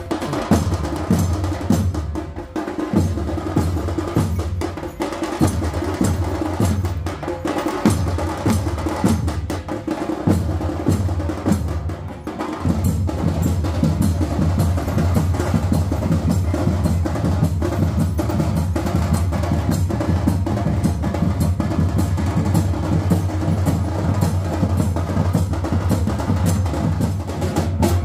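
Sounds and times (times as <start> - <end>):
sharp clacking drum strokes: 0.0 - 28.0
deep drum beat: 12.6 - 28.0.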